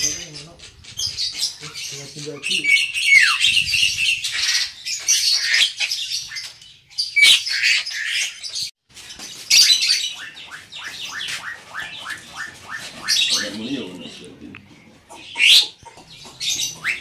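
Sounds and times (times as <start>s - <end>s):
mynas chattering squawks: 10.2s - 17.0s.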